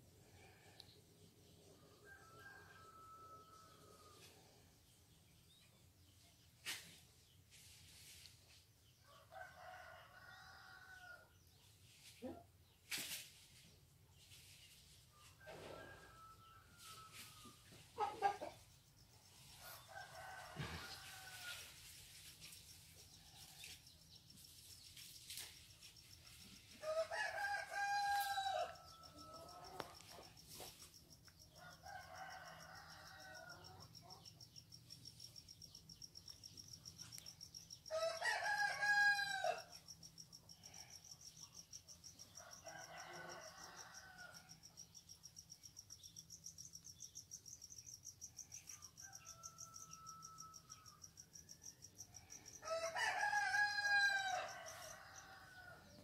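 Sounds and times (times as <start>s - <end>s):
rooster crowing: 2.0s - 4.2s, 9.1s - 11.2s, 19.9s - 21.7s, 26.8s - 30.0s, 31.6s - 33.9s, 37.9s - 39.7s, 42.4s - 44.5s, 49.0s - 50.9s, 52.5s - 56.0s.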